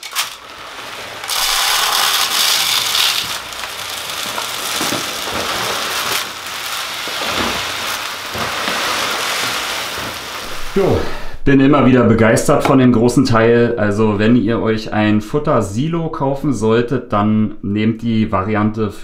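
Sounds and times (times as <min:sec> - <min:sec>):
feed pellets pouring rattling: 0:00.0 - 0:11.0.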